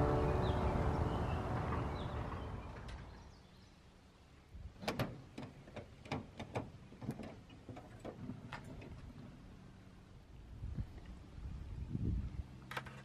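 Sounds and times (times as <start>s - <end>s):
music: 0.0s - 2.2s.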